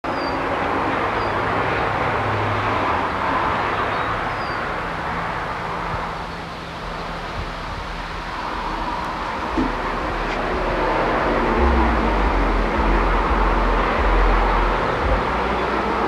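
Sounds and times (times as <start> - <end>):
wind rushing: 7.3 - 16.0.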